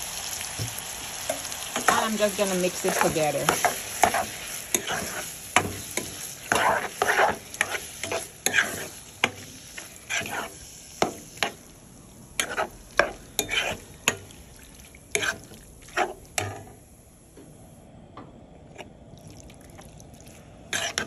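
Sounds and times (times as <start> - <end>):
spatula stirring meat in a pan: 0.6 - 16.8, 20.7 - 21.0.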